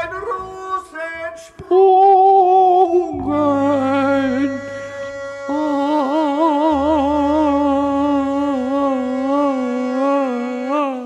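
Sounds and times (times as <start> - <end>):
electric bass line: 3.0 - 10.6
harmonica playing: 3.2 - 11.0.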